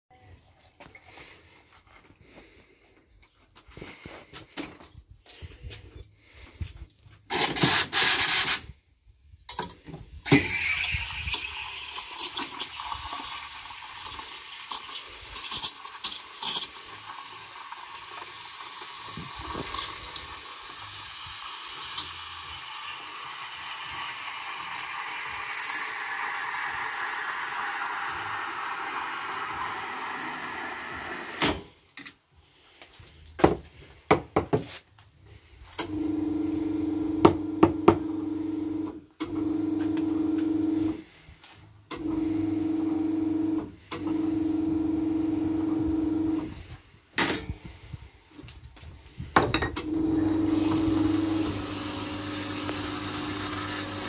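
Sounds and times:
steam wand hissing: 10.3 - 31.6, 50.5 - 54.0
loud blast of steam: 19.0 - 31.7.

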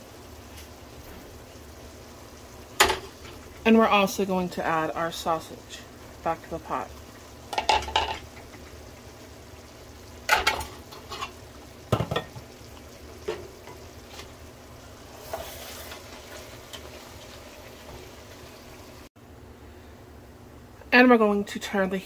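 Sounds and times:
pot simmering: 0.0 - 19.5
spoon clinking and scraping pot: 10.3 - 11.4.

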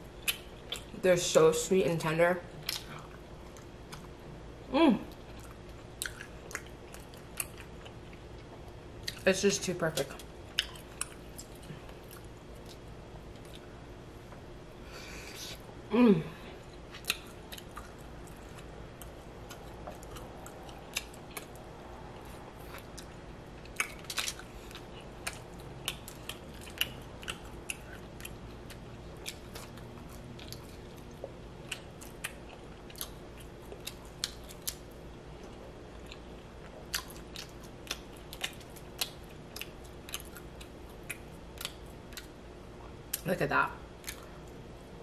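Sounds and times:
faint steady hum: 0.0 - 45.0
person chewing wetly: 5.1 - 9.2, 10.0 - 14.4, 16.6 - 43.2, 44.0 - 44.6.

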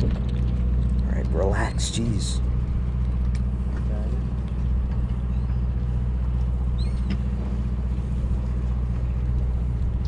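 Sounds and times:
boat engine droning: 0.0 - 10.0.

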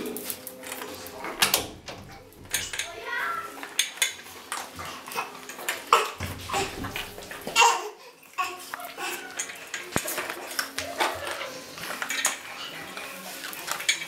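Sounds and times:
metal bowl clinking: 0.0 - 7.8, 8.7 - 14.0
puppies eating dry kibble: 0.0 - 14.0.

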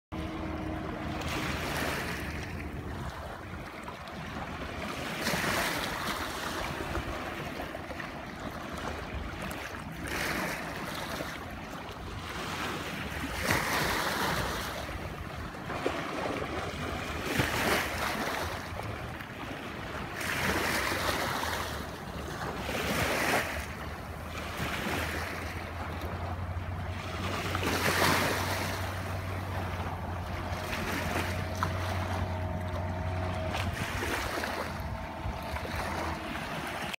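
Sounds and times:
outboard motor hum: 0.1 - 36.9
small waves washing in: 0.1 - 36.9
wind buffeting microphone: 12.7 - 36.9.

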